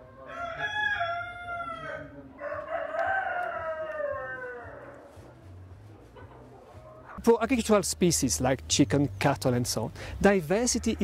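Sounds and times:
rooster crowing: 0.2s - 5.2s.

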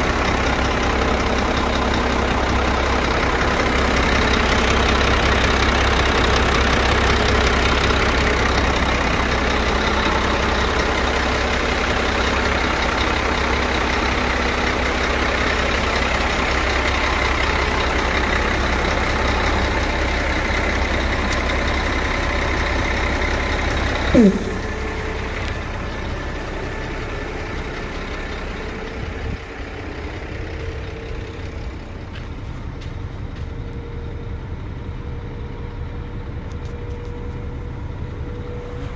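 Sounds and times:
diesel truck engine idling: 0.0s - 38.8s
sharp sound falling in pitch: 24.2s - 25.1s.

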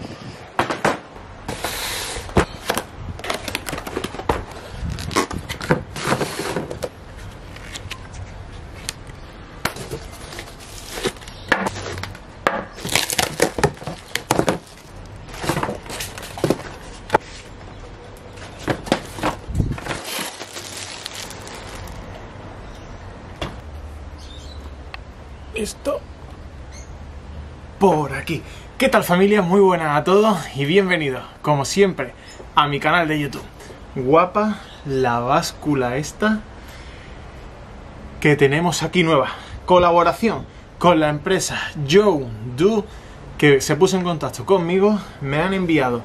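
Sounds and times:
cardboard box being opened: 9.8s - 12.1s, 12.8s - 17.0s, 18.7s - 22.0s
foam packing pulled out: 9.8s - 12.2s, 12.8s - 16.6s, 18.9s - 22.0s
plastic wrap crinkling: 9.8s - 16.7s, 19.0s - 22.1s.

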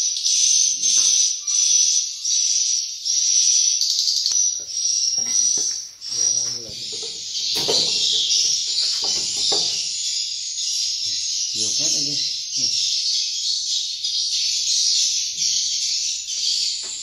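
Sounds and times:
swiftlets twittering: 3.8s - 16.8s.

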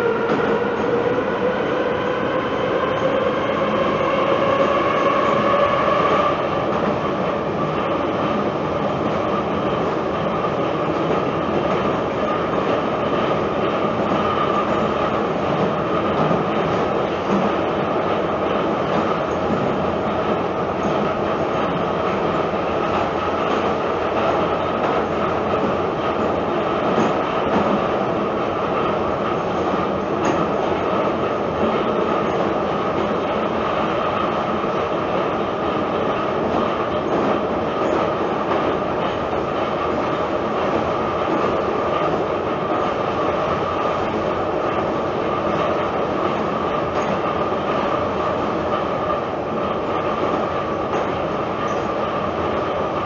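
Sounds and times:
metro train rumble and rail noise: 0.0s - 53.0s.

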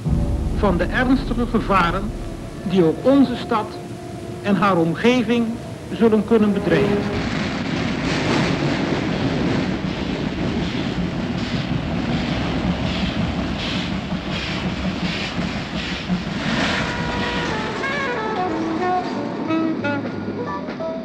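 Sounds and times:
falling musical notes: 0.0s - 7.7s
train rumbling: 0.0s - 21.0s.

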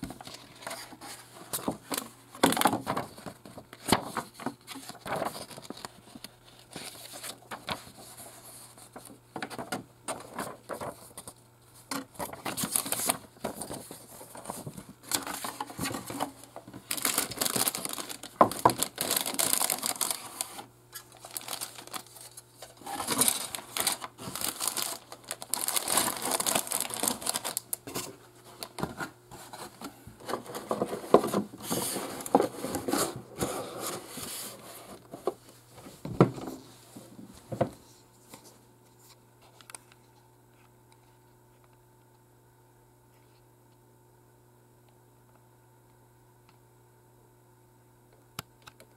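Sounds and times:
paper rustling: 0.1s - 35.3s
plastic bags crinkling: 12.2s - 28.9s.

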